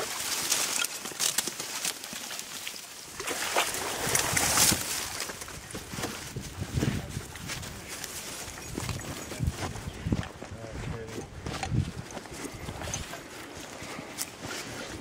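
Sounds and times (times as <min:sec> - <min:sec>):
crunching footsteps: 0:00.0 - 0:15.0
dry reeds rustling and crackling: 0:00.0 - 0:15.0.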